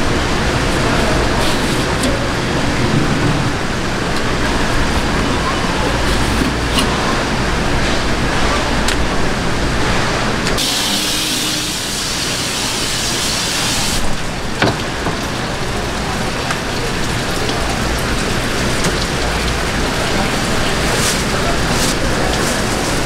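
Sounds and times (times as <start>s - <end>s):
running water hissing: 10.6s - 23.0s.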